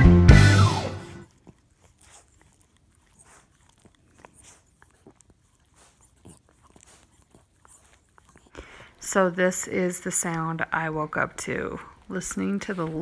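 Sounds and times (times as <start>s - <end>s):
dog licking a hand: 1.3s - 9.0s.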